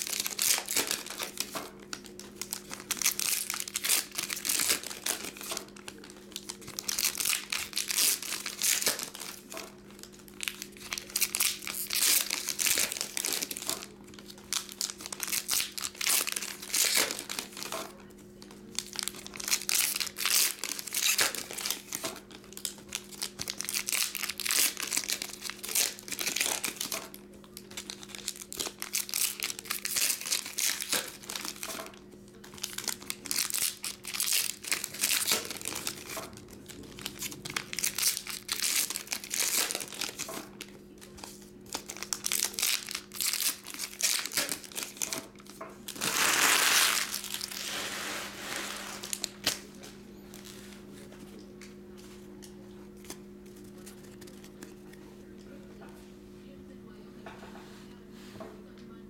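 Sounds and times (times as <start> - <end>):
foil wrappers tearing and crinkling: 0.0 - 50.6.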